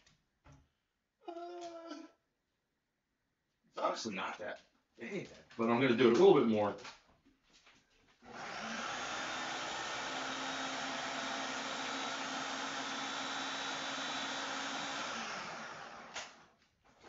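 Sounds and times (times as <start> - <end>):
food processor running: 8.3 - 16.5.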